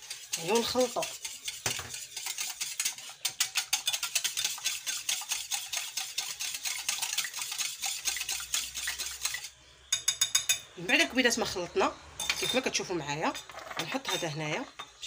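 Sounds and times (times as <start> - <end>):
whisk ticking against glass bowl: 0.0 - 10.6.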